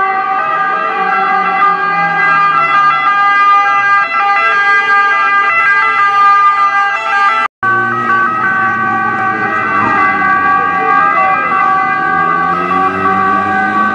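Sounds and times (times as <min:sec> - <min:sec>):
two-tone emergency sirens: 0:00.0 - 0:13.9.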